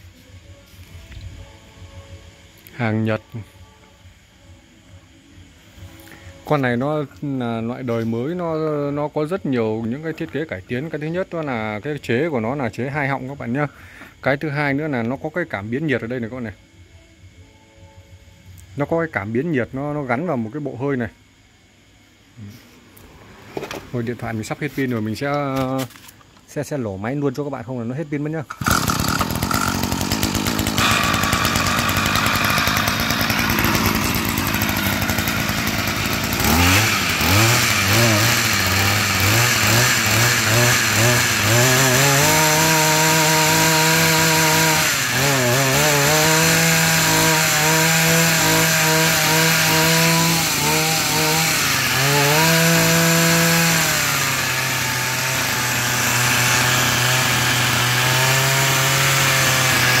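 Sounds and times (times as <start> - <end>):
brush cutter engine: 28.5 - 60.0.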